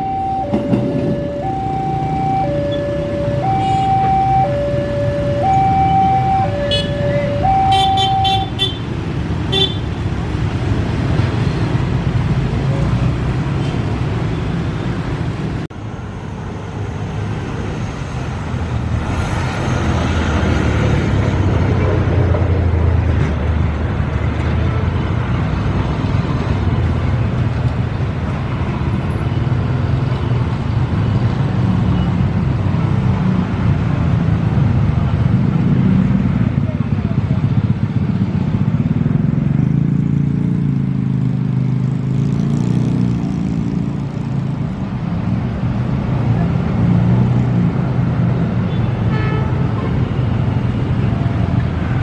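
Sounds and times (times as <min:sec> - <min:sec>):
level crossing alarm two-tone: 0:00.0 - 0:08.5
road traffic and engine noise: 0:00.0 - 0:52.0
short horn beeps: 0:06.7 - 0:08.8.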